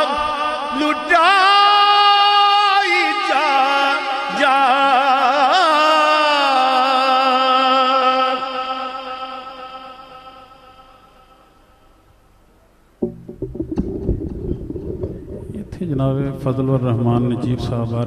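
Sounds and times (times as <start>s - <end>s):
man singing through loudspeakers: 0.0s - 11.2s.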